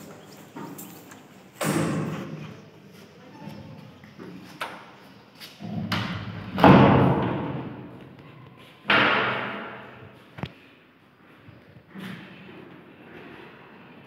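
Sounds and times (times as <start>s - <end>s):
wooden door banging with echo: 5.8s - 8.0s, 8.9s - 10.0s.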